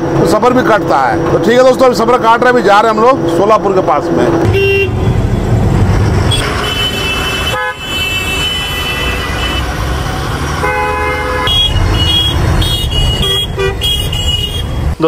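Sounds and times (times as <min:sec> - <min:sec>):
truck engine rumble: 0:00.0 - 0:15.0
vehicle horns honking: 0:04.4 - 0:05.4, 0:06.2 - 0:09.9, 0:10.5 - 0:14.9.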